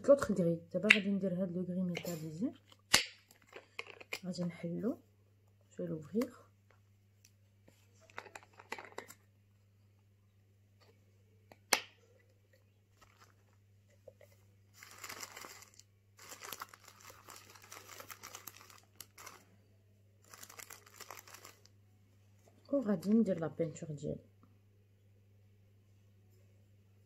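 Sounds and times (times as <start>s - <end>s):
plastic crinkling and rustling: 7.7s - 9.2s, 12.9s - 19.5s, 20.2s - 21.7s.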